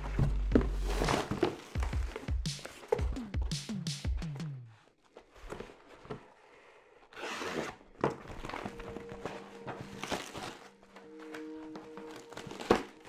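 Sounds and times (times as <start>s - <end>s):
packaging rustling: 0.1s - 3.0s, 7.5s - 13.0s
cardboard ripping: 0.8s - 1.8s.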